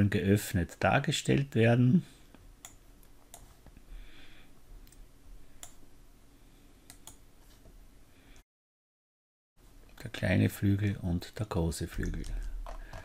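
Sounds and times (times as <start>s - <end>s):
faint room hiss: 0.0s - 8.4s, 9.6s - 13.0s
computer mouse clicking: 5.6s - 5.8s, 6.9s - 7.2s.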